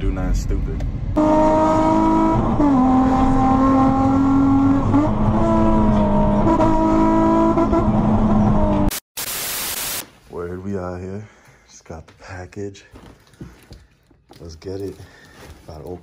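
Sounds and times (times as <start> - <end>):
sports car engine accelerating: 1.2 - 8.9.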